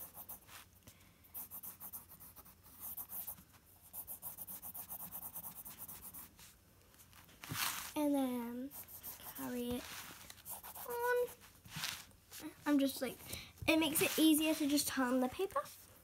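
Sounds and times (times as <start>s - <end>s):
pencil drawing on paper: 0.0s - 0.7s, 1.3s - 6.6s, 8.6s - 12.0s.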